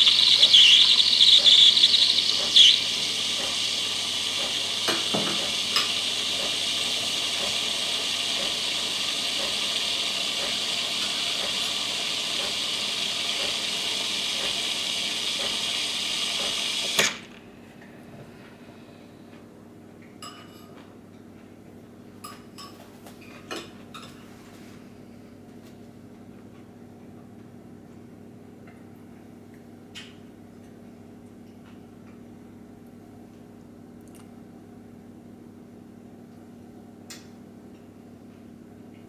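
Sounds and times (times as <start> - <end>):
milk frother hissing: 0.0 - 17.1.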